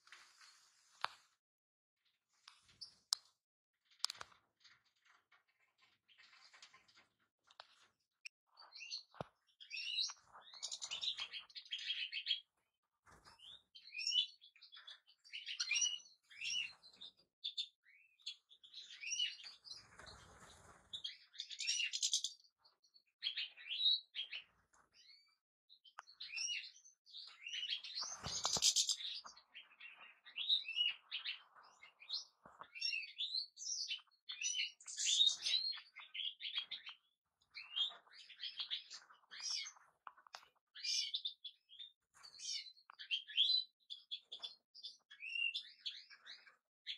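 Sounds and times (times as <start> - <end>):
goldfinch twittering song: 8.5 - 12.5, 13.3 - 20.1, 20.9 - 46.9
brief rustle: 28.0 - 29.4.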